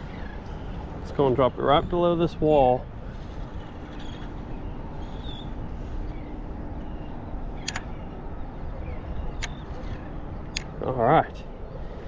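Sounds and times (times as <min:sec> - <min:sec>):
low outdoor rumble: 0:00.0 - 0:12.0
short sharp clicks: 0:07.6 - 0:07.9.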